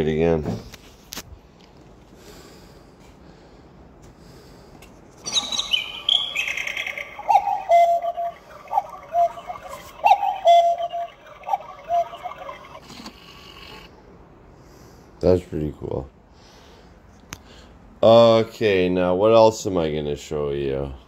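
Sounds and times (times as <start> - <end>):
high twittering birdsong: 5.2 - 12.9
cuckoo clock call: 5.3 - 13.9.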